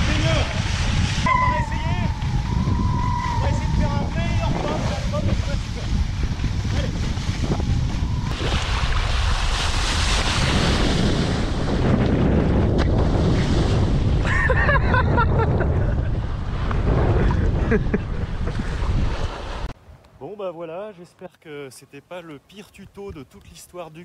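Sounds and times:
water rushing and splashing: 0.0 - 2.5, 7.2 - 11.9
wind buffeting microphone: 0.0 - 19.8
distant voice calling: 1.3 - 4.9.

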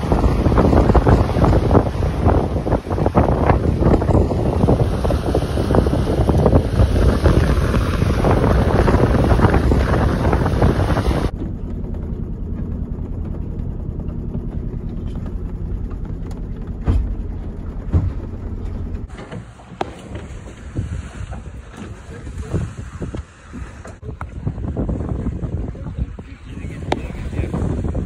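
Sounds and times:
wind buffeting microphone: 0.0 - 28.0
low hum inside cabin: 10.0 - 20.4
sharp knocks: 14.0 - 20.3.

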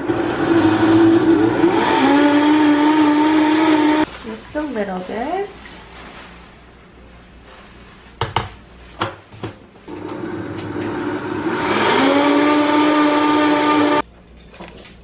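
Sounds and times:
blender humming: 0.0 - 4.1, 9.9 - 14.0.

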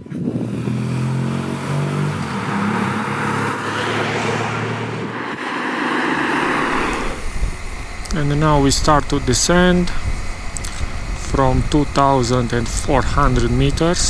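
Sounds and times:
wind noise over microphone: 0.0 - 0.9, 3.9 - 14.0
motorcycle engine running: 6.8 - 14.0.

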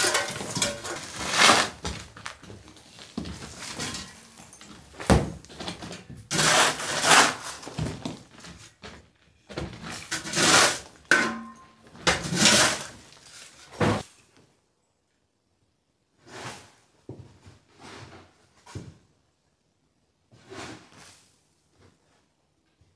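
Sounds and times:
shovel scraping rubble: 0.0 - 2.1, 6.3 - 7.9, 9.9 - 13.7.

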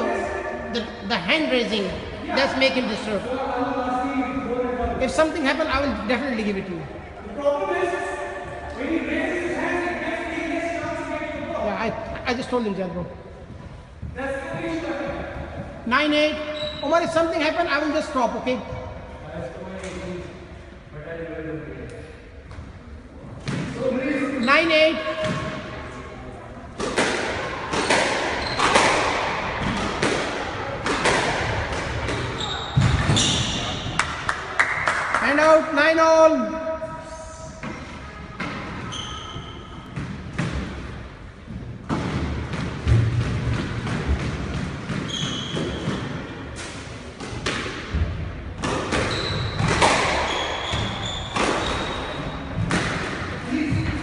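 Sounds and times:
shoes squeaking on wooden floor: 16.5 - 17.2, 27.7 - 29.0, 32.2 - 33.8, 38.5 - 39.9, 45.0 - 46.1, 49.0 - 52.6
squash ball hitting rackets and walls: 25.1 - 25.8, 26.7 - 35.2, 37.6 - 54.0.

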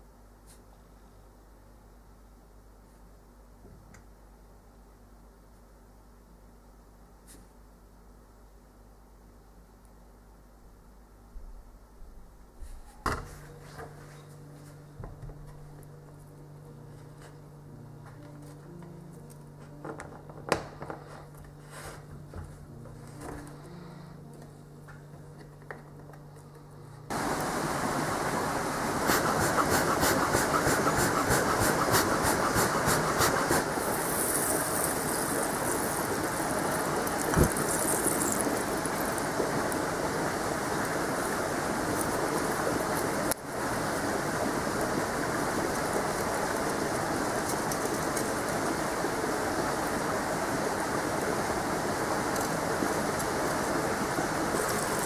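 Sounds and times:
fire crackling: 27.1 - 55.0
fire roaring: 27.1 - 55.0.

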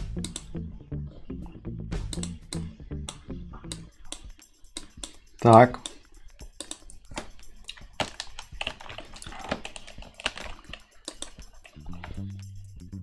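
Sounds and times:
low hum: 0.0 - 5.4, 11.4 - 13.0
keyboard and mouse clicks: 0.2 - 0.5, 2.1 - 12.2.

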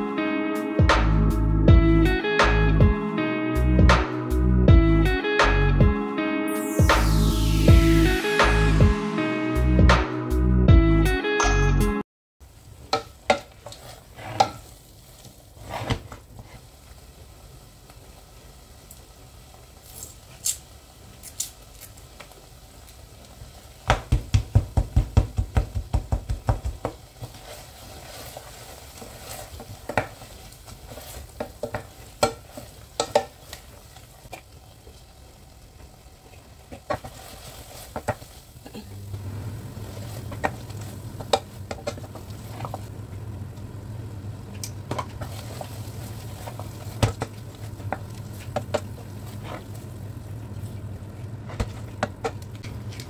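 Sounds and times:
spoon stirring and clinking in pan: 30.9 - 33.7.

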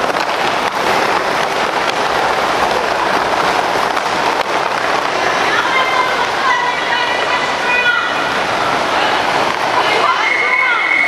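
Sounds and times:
roller skate wheels rolling: 0.0 - 7.5.

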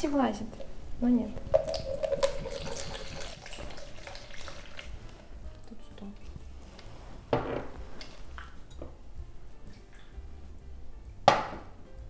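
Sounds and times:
juice pouring into plastic jug: 1.4 - 5.2
sharp knock: 11.3 - 11.7.

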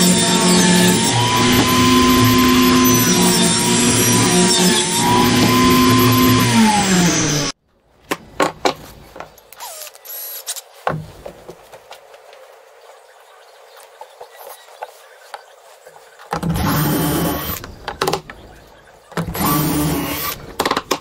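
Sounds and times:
table saw cutting wood: 0.0 - 7.6, 16.4 - 17.7, 19.2 - 20.5
wooden boards knocking: 10.9 - 11.6.

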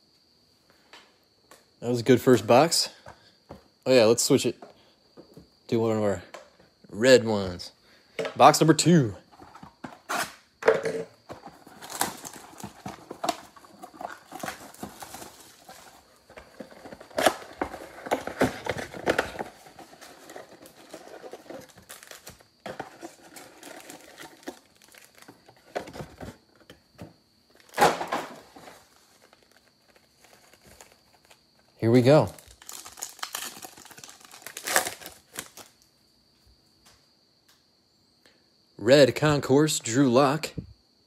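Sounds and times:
cardboard and foil crinkling: 11.3 - 26.4, 27.6 - 35.8.

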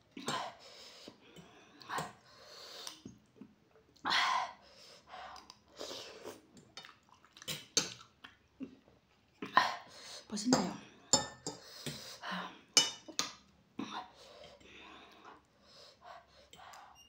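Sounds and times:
noodles slurped and chewed: 5.2 - 9.6.

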